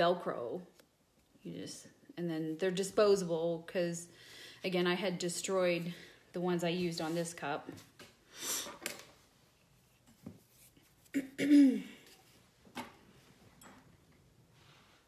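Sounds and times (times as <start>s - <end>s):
woman clearing her throat: 11.1s - 12.0s.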